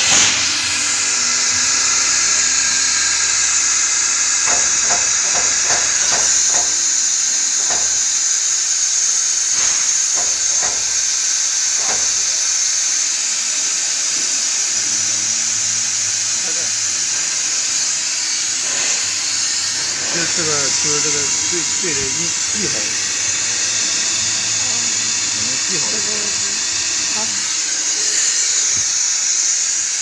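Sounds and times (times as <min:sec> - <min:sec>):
compressed air hissing: 0:00.0 - 0:30.0.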